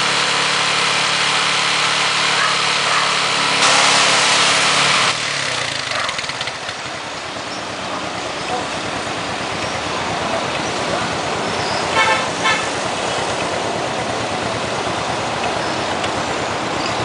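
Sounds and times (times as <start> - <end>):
motorbike engine running: 0.0 - 17.0
horn toots: 11.8 - 12.8.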